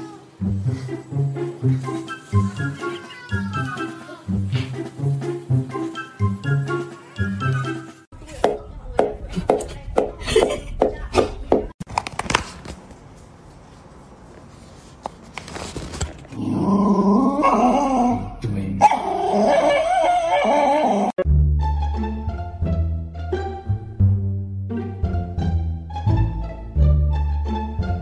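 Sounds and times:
dog whining: 0:18.8 - 0:21.2.

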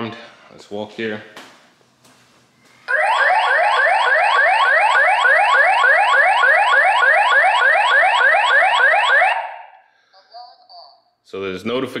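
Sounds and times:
alarm siren rising whoops: 0:02.9 - 0:09.7.

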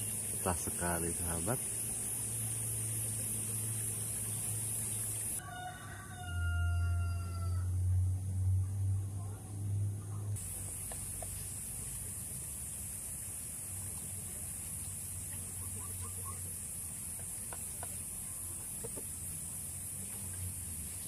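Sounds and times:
steady high hiss: 0:00.0 - 0:05.4, 0:10.4 - 0:21.0
low hum: 0:07.6 - 0:10.7
faint chickens clucking: 0:10.4 - 0:12.2, 0:15.2 - 0:19.4.

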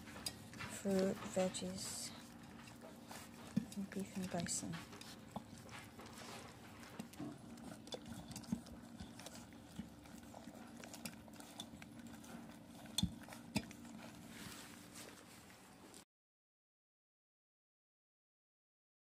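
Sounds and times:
puppies licking and chewing: 0:00.0 - 0:16.0.

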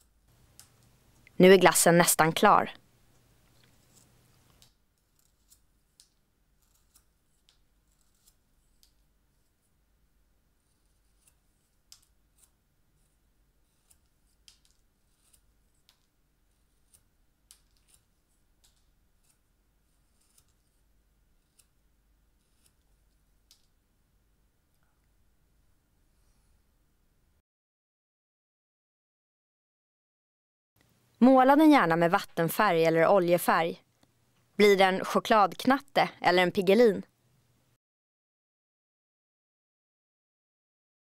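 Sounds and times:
knife shaving wood chips: 0:05.0 - 0:09.6, 0:10.6 - 0:23.4.

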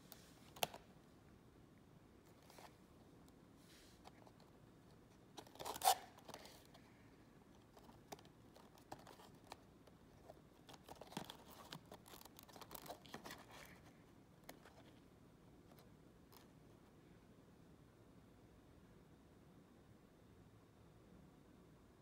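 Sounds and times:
cardboard clicks and rustles: 0:07.6 - 0:14.9.

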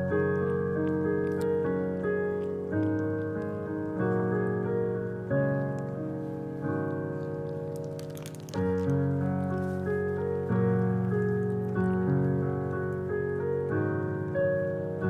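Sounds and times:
slow piano chords: 0:00.0 - 0:15.0
brief crackling noise: 0:06.9 - 0:10.3.

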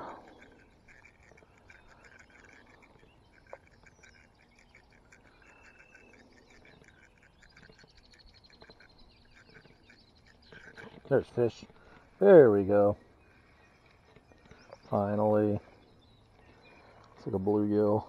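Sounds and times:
rapid chirping animal calls: 0:00.0 - 0:17.2.

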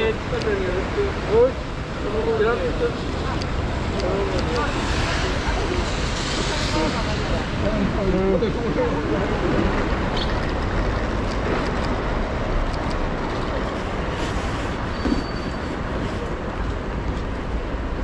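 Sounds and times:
bus running: 0:00.0 - 0:18.0
street traffic: 0:00.0 - 0:18.0
heavy rain: 0:02.7 - 0:10.1.

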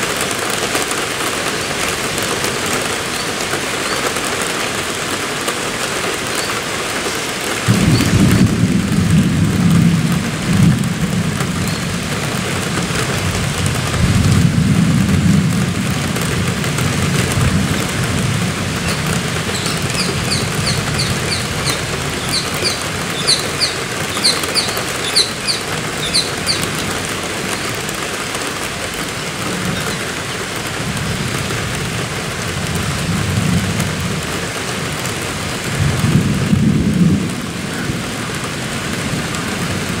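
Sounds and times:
steady rain: 0:00.0 - 0:40.0
low rumbles of thunder: 0:07.7 - 0:27.8, 0:35.6 - 0:40.0
parakeet high-pitched calls: 0:18.8 - 0:27.8.

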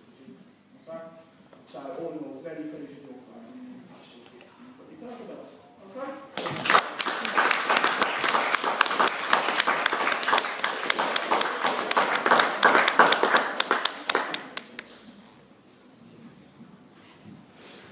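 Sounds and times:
small group clapping: 0:06.4 - 0:15.2.

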